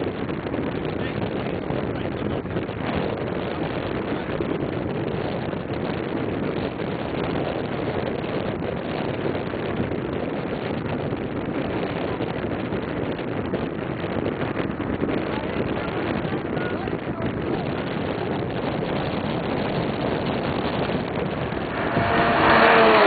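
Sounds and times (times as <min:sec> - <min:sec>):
wind noise on microphone: 0:00.0 - 0:23.0
distant sports car engines: 0:19.4 - 0:23.0.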